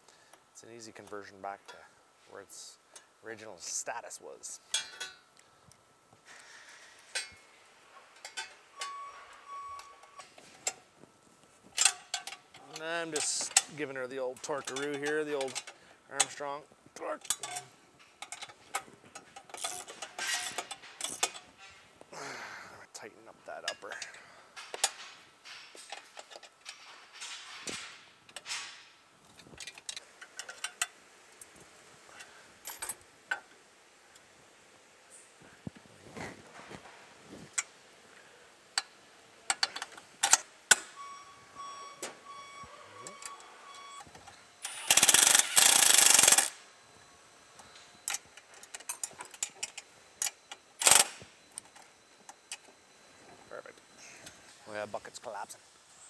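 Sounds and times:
metal tools clinking: 4.6 - 5.2, 8.1 - 10.8, 11.8 - 16.5, 17.1 - 21.8
tools clicking on metal: 11.8 - 13.7, 14.4 - 16.4, 17.2 - 21.5, 44.6 - 46.6, 47.6 - 52.6
hand ratchet clicking: 44.6 - 46.6, 49.3 - 51.2
impact wrench hammering bolt: 44.7 - 46.6, 50.8 - 51.2.

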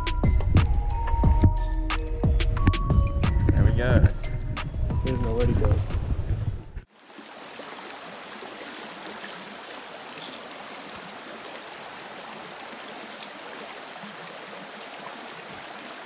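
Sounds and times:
creek water rushing over stones: 6.9 - 16.0.

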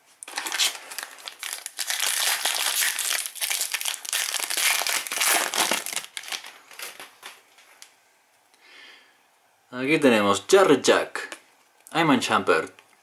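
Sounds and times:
foil wrapper crinkling: 0.2 - 7.4
foil wrapper rustling: 0.2 - 7.4.

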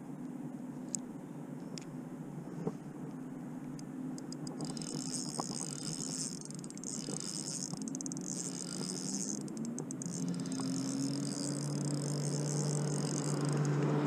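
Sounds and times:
steady low hum: 0.0 - 14.0
insects calling in chorus: 4.6 - 14.0.

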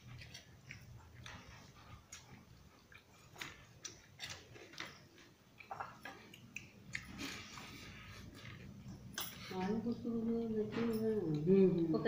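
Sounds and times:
chewing and lip-smacking: 0.0 - 9.5.

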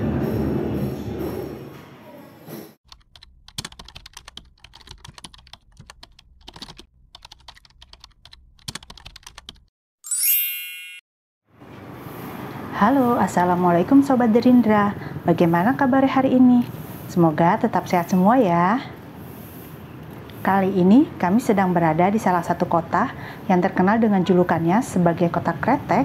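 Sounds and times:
keyboard typing clicks: 2.9 - 9.7
bright descending chime: 10.0 - 11.0.

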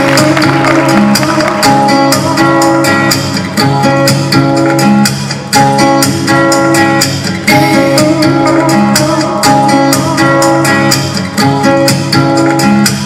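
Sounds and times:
plucked guitar-like notes: 0.0 - 13.0
steady beat: 0.0 - 13.0.

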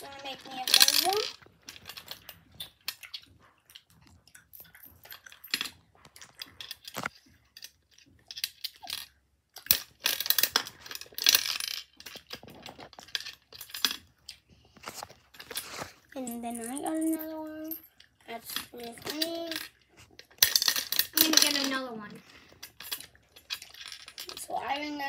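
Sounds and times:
coins clinking and dropping: 0.0 - 2.1, 9.7 - 12.4, 20.4 - 21.9.

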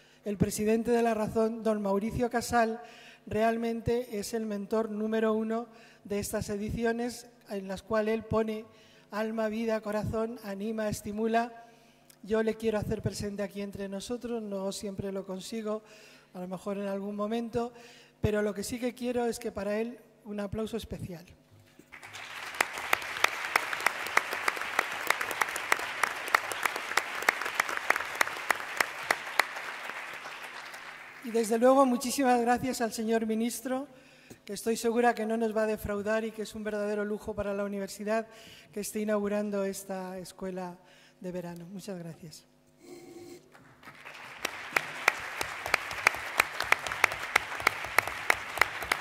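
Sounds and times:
loud close claps: 21.8 - 31.3, 43.5 - 49.0
audience applauding: 21.9 - 31.4, 43.5 - 49.0.

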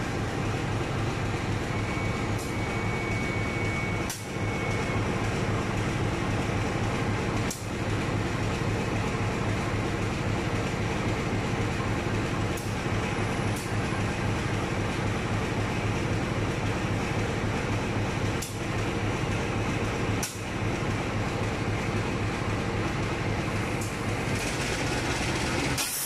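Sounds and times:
diesel locomotive engine idling: 0.0 - 26.0.

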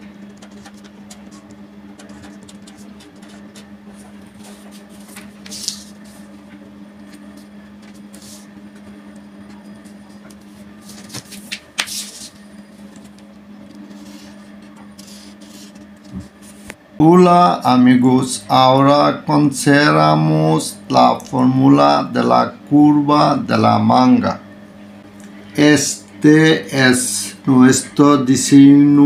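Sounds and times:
marker pen scratching on paper: 0.0 - 6.3, 7.0 - 8.9, 13.9 - 16.7
steady low hum: 0.0 - 29.0.

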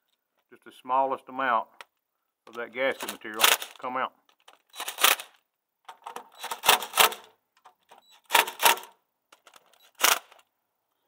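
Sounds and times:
impact driver rattling: 4.4 - 7.3, 7.9 - 10.4.

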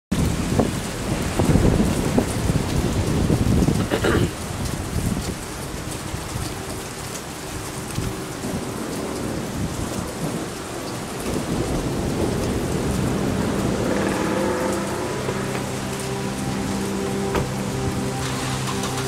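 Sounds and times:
rain falling: 0.1 - 19.0
thunder rumbling: 9.3 - 19.0.

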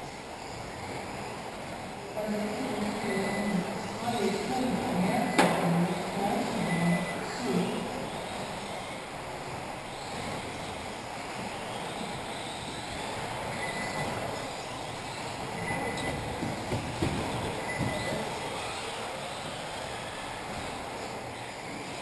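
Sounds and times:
rc cars motor whine: 0.0 - 22.0
short high beeps: 13.5 - 14.2, 15.6 - 16.2.

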